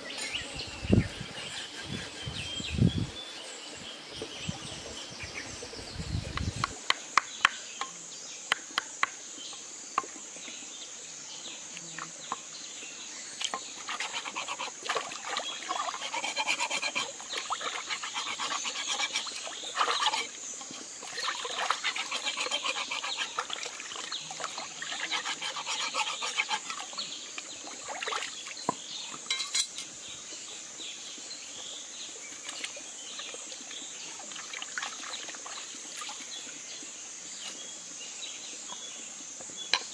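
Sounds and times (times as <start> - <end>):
water splashing in a stream: 13.4 - 28.9, 32.1 - 36.7.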